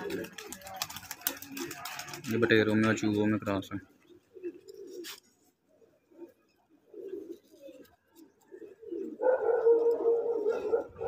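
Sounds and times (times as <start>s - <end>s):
pigeon cooing: 4.1s - 11.0s.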